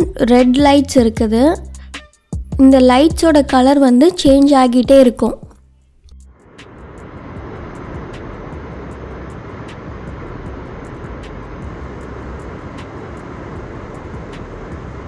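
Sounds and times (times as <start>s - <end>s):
waterfall roaring: 6.8s - 15.0s.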